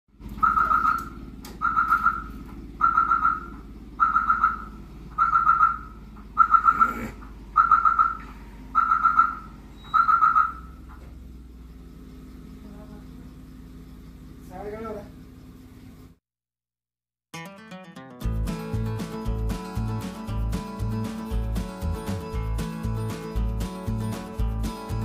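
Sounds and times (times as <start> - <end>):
electronic alarm warbling beeps: 0.4 - 10.8.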